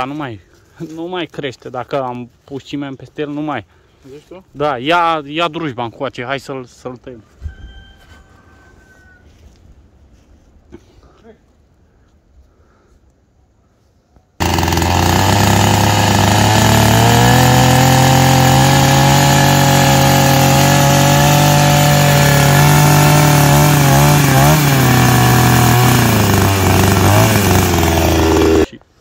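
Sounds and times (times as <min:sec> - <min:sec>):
chainsaw cutting wood: 0:14.4 - 0:28.7.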